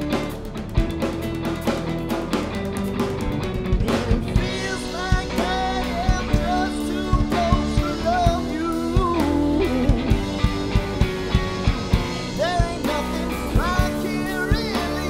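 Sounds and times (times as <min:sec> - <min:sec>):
drum kit beat: 0:00.0 - 0:15.0
strummed electric guitar: 0:00.0 - 0:15.0
person singing lead vocal: 0:03.7 - 0:11.0, 0:12.2 - 0:15.0.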